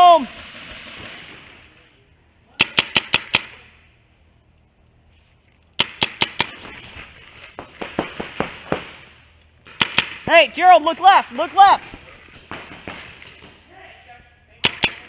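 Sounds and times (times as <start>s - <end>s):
paintball markers firing: 2.6s - 3.7s, 5.8s - 10.3s, 11.8s - 13.7s, 14.6s - 15.0s.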